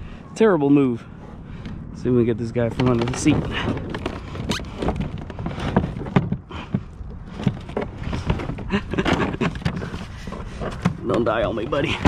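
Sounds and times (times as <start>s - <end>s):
kayak seat knocking and rattling: 2.7s - 12.0s.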